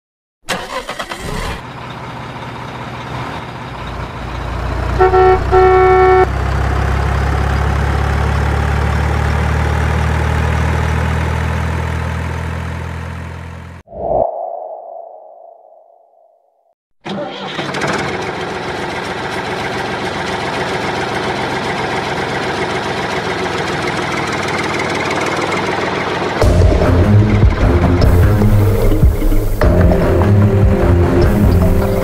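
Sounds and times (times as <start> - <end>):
diesel truck engine running: 0.5 - 13.8, 17.2 - 32.0
truck horn honks: 4.8 - 6.4
short tone: 4.9 - 6.3.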